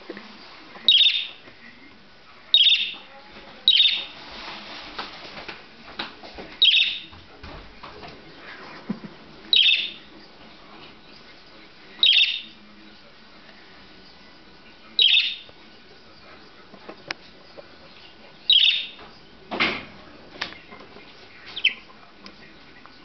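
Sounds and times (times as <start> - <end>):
budgerigar chatter: 0.9 - 1.4, 2.5 - 3.1, 3.7 - 4.1, 6.6 - 7.1, 9.5 - 10.1, 12.0 - 12.6, 15.0 - 15.5, 17.6 - 19.3, 21.4 - 22.1
budgerigar chirping: 0.9 - 1.4, 2.5 - 3.1, 3.7 - 4.1, 6.6 - 7.1, 9.5 - 10.1, 12.0 - 12.5, 15.0 - 15.5, 18.5 - 19.0, 21.6 - 21.9.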